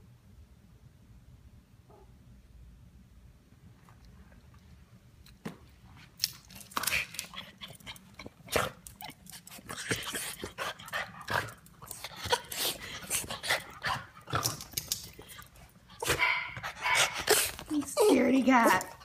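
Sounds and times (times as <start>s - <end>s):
dog whimpering: 17.3s - 19.0s.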